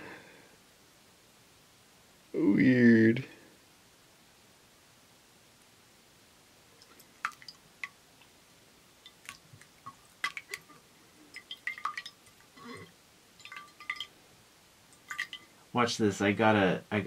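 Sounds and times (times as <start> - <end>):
water dripping and splashing: 6.8 - 8.4, 9.0 - 14.2, 14.9 - 15.5.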